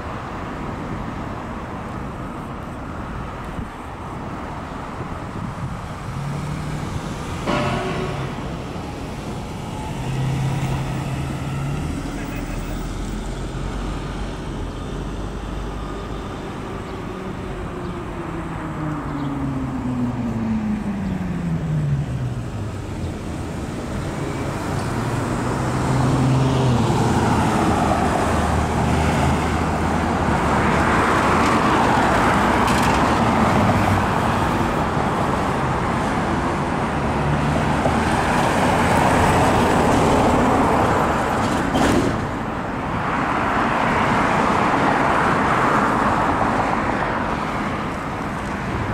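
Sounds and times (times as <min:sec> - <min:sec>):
passing cars tyre and engine noise: 0:00.0 - 0:48.9
vehicle passing by: 0:06.0 - 0:41.3.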